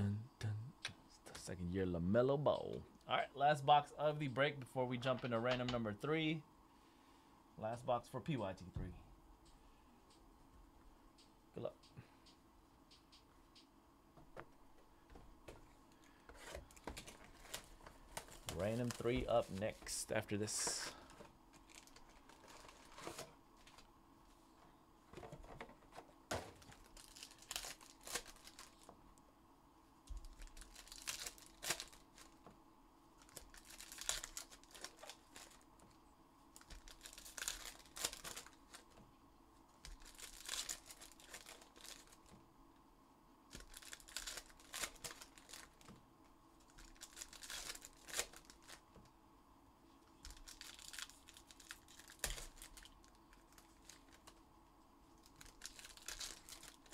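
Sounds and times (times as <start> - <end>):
plastic wrappers tearing and crinkling: 16.4 - 23.9, 26.4 - 28.9, 30.2 - 32.4, 33.2 - 35.7, 36.5 - 39.0, 39.8 - 42.3, 43.5 - 45.9, 46.6 - 48.8, 50.2 - 54.4, 55.1 - 56.9.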